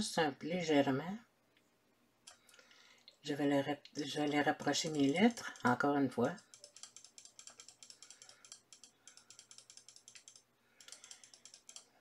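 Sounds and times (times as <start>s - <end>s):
computer mouse clicking: 2.2s - 3.2s, 3.8s - 12.0s.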